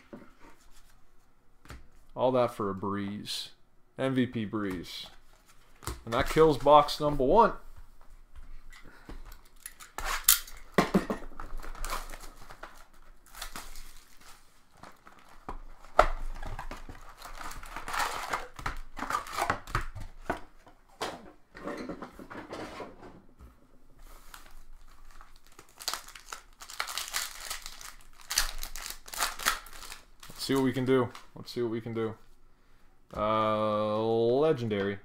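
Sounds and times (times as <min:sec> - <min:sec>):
plastic wrapping tearing and crinkling: 0:09.4 - 0:10.8, 0:11.4 - 0:19.8, 0:24.2 - 0:31.3.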